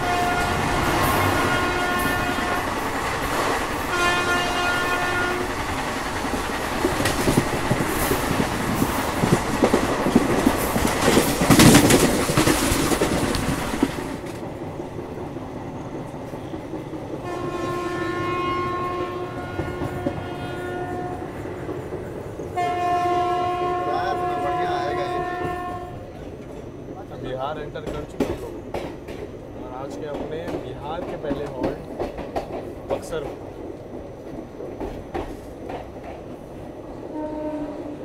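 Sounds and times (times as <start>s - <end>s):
train horn blast: 0.0s - 2.8s, 3.9s - 5.6s, 17.2s - 21.4s, 22.6s - 26.1s, 37.1s - 38.0s
train wheels clattering on rails: 0.0s - 38.0s.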